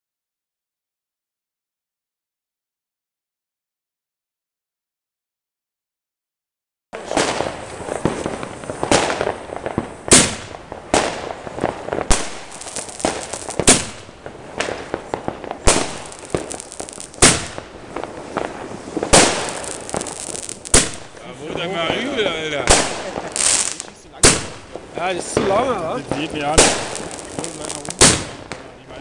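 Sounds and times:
fireworks bangs: 0:07.0 - 0:29.0
fireworks crackling: 0:07.0 - 0:29.0.

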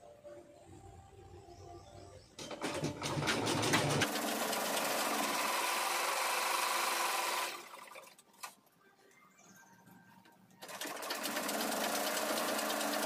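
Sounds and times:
sewing machine stitching: 0:02.4 - 0:08.6, 0:10.6 - 0:13.0.

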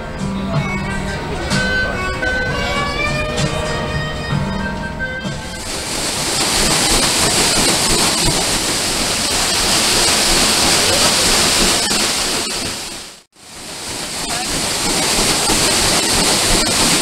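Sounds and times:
paddlewheel churning water: 0:05.5 - 0:17.0.

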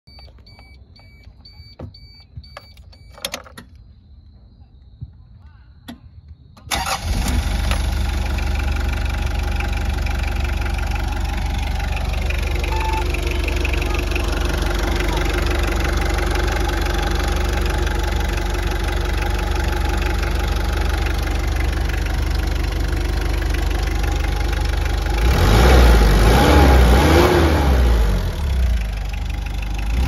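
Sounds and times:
dashboard warning beeper: 0:00.0 - 0:03.5, 0:11.0 - 0:15.7
clicks: 0:00.1 - 0:03.8
diesel engine starting and idling: 0:06.6 - 0:30.0.

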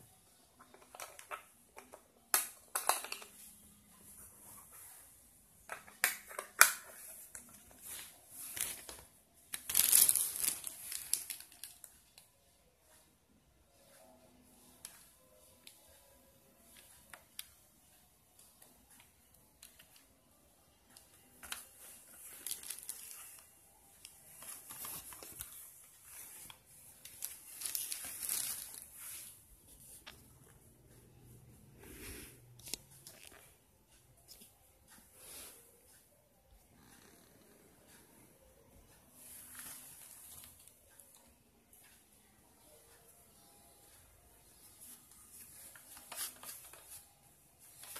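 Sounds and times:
plastic bag crinkling: 0:08.5 - 0:11.9, 0:22.0 - 0:23.4, 0:27.0 - 0:29.1.

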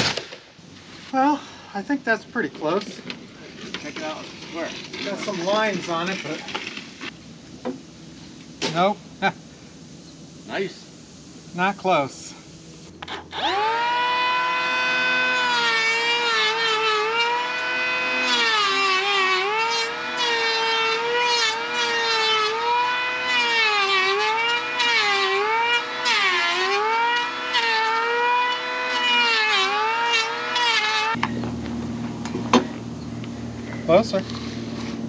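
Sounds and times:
electric planer whining: 0:13.0 - 0:31.6.

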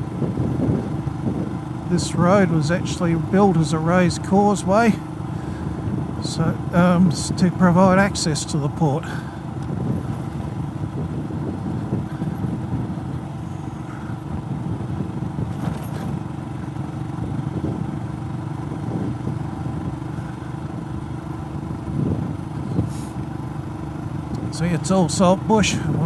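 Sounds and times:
motorcycle engine cruising: 0:00.0 - 0:26.0
tyres rumbling on gravel: 0:00.0 - 0:26.0
short clatter: 0:15.5 - 0:16.3.

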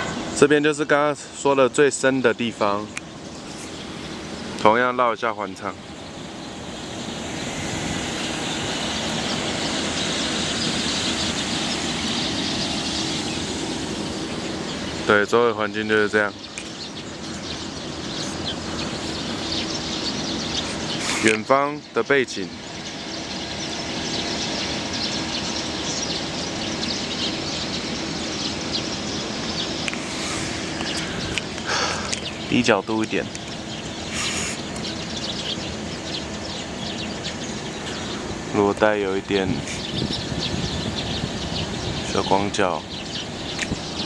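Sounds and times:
faint constant hum: 0:00.0 - 0:44.0
outdoor background noise: 0:00.0 - 0:44.0.

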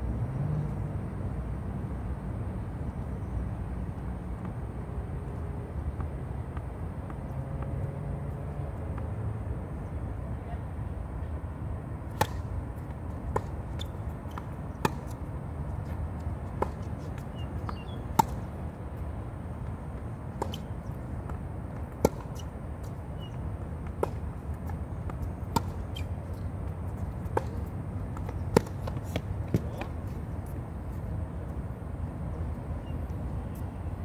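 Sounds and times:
tennis ball hit and bouncing: 0:12.0 - 0:30.6.

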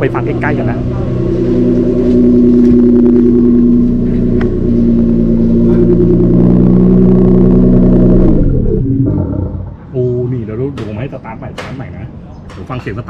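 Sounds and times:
synthesized engine note humming: 0:00.0 - 0:10.0.

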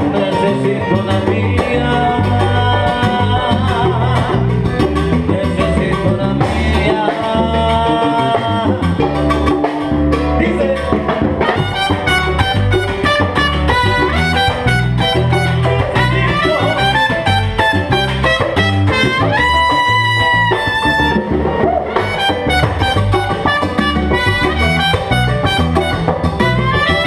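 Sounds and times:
bass: 0:00.0 - 0:27.0
congas: 0:00.0 - 0:27.0
drum kit: 0:00.0 - 0:27.0
piano: 0:00.0 - 0:27.0
trumpet: 0:11.4 - 0:27.0.

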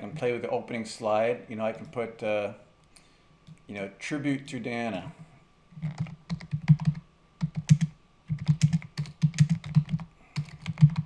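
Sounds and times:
typing on computer keyboard: 0:05.8 - 0:11.0.

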